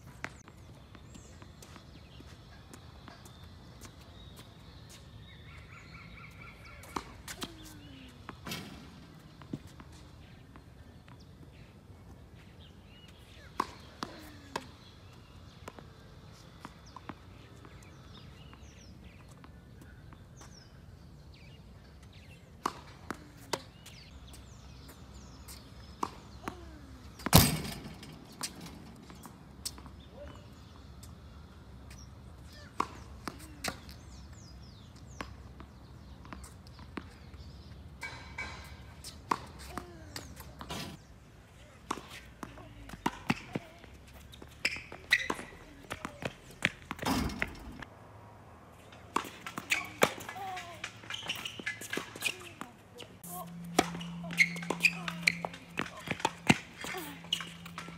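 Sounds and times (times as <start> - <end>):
tennis ball hits: 49.1 - 57.9.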